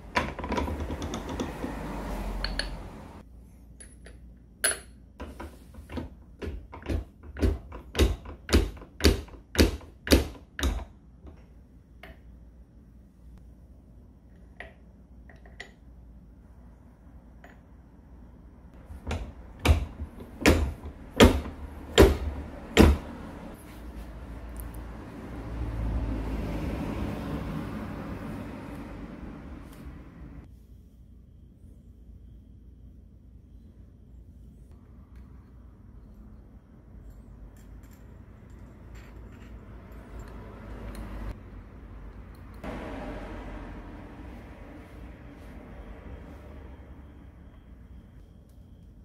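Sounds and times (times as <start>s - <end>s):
sharp metal knocks: 6.4s - 10.9s, 18.9s - 23.1s.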